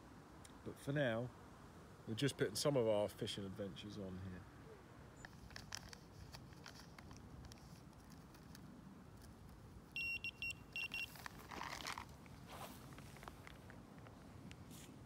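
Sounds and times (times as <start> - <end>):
brief rustle: 5.2 - 9.6, 11.0 - 15.0
bite alarm high beeps: 10.0 - 11.2.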